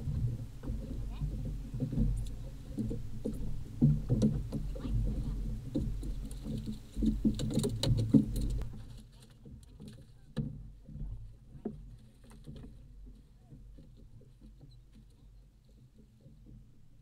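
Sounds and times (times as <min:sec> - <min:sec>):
waves lapping against boat hull: 0:00.0 - 0:17.0.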